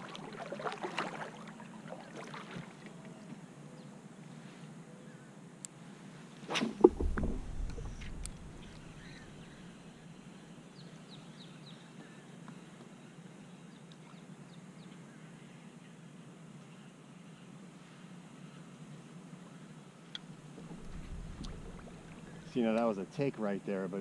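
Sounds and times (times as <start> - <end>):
low thud: 6.6 - 9.5, 20.6 - 22.6
knock and clatter: 6.8 - 8.2
bird chirps: 7.8 - 9.7.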